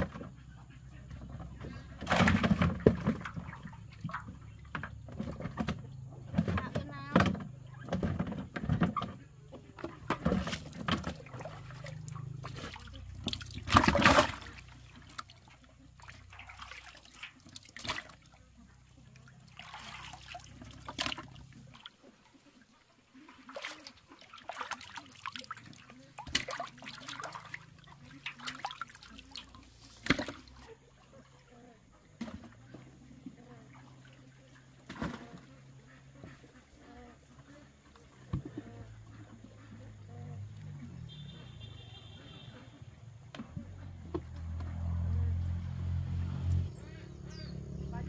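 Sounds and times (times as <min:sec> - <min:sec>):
water splashing and sloshing: 0:00.0 - 0:48.0
water trickling: 0:11.1 - 0:30.3.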